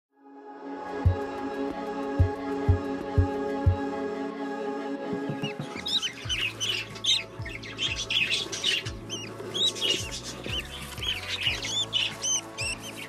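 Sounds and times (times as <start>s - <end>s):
low knocks: 5.1s - 6.4s
budgerigars chirping: 5.4s - 13.0s.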